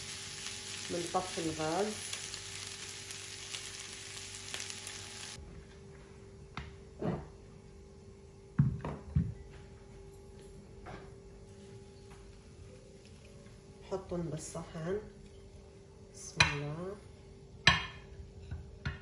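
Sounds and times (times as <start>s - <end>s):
food sizzling in frying pan: 0.0s - 5.4s.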